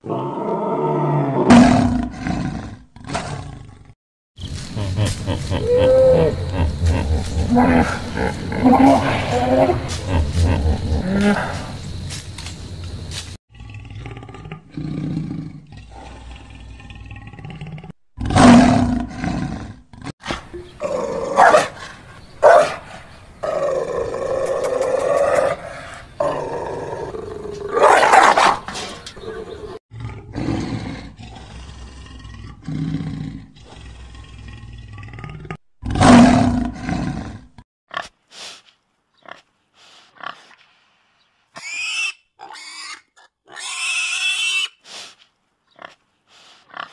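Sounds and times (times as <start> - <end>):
wild animal roars and growls: 0.0 - 4.0, 4.7 - 12.0, 13.5 - 22.0, 22.9 - 37.6
pig grunts and snorts: 4.6 - 11.8, 23.4 - 38.5, 39.2 - 40.6, 45.7 - 46.9.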